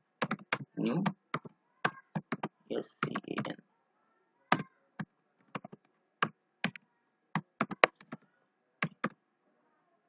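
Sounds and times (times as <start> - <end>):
typing on computer keyboard: 0.2 - 3.5, 4.5 - 6.8, 7.4 - 8.2, 8.8 - 9.2.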